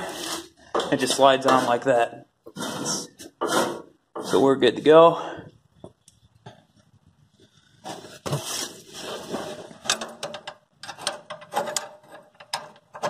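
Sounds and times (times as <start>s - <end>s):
metal clicks clanks and scrapes: 9.6s - 13.0s.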